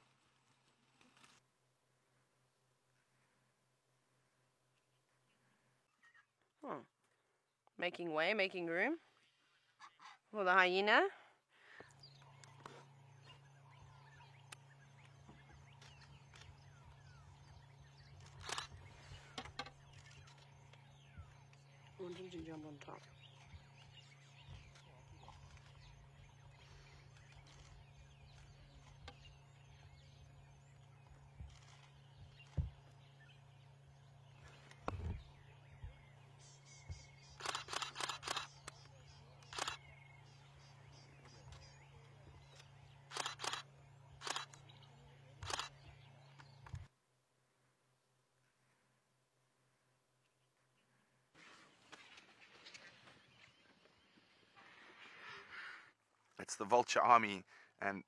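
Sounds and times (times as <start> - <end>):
low hum: 11.1 - 55.6
birds chirping thinly: 11.6 - 46.9
sharp clicks: 18.2 - 20.5, 37.2 - 40.0, 42.5 - 44.7, 45.4 - 46.9.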